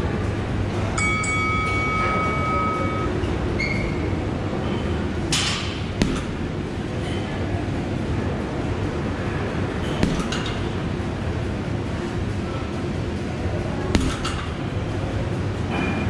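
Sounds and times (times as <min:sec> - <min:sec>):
ventilation hum: 0:00.0 - 0:16.0
round timer beep: 0:01.0 - 0:03.2.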